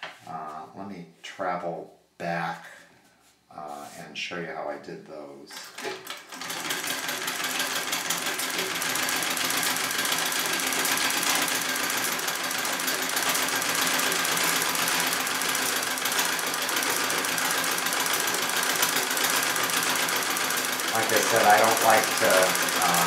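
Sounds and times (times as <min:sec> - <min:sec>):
treadle sewing machine stitching: 0:05.6 - 0:23.0.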